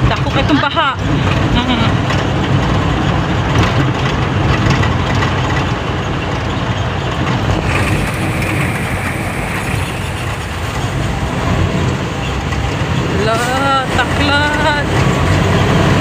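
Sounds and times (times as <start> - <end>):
truck engine rumble: 0.0 - 16.0
floodwater rushing hiss: 7.6 - 11.9.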